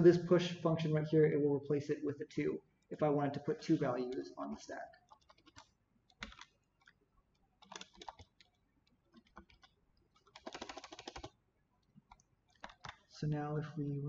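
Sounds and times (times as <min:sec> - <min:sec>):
computer keyboard typing: 0:03.5 - 0:11.4, 0:12.0 - 0:13.1
backspace key tapped rapidly: 0:05.0 - 0:06.9, 0:07.6 - 0:11.3.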